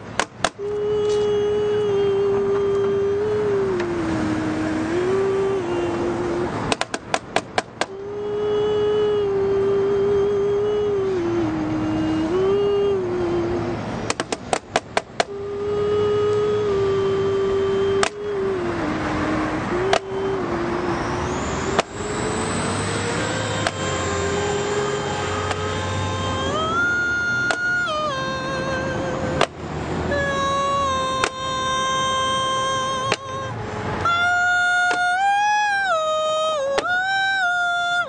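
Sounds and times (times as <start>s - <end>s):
man singing held notes: 0.0s - 38.0s
drumstick clicks: 6.7s - 7.9s, 14.1s - 15.3s.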